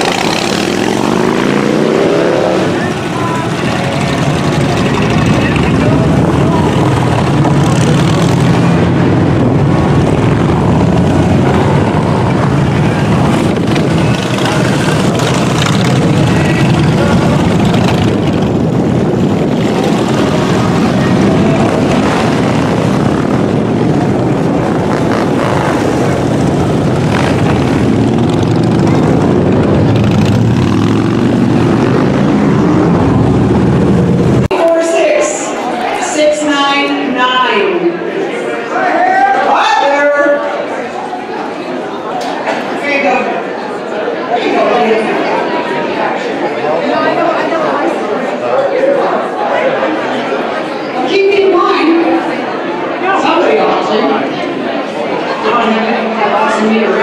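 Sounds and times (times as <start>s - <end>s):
motorcycle engines running: 0.0s - 35.7s.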